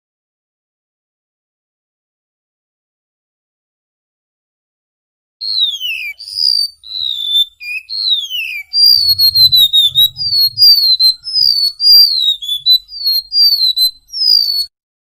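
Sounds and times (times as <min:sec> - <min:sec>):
bird singing whistled notes: 0:05.4 - 0:14.7.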